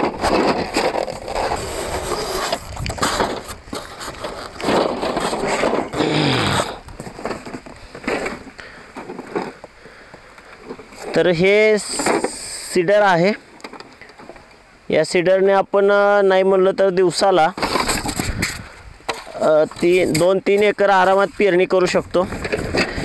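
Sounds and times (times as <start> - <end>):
packaging rustling and scraping: 0.0 - 12.6, 17.6 - 21.5, 22.2 - 23.0.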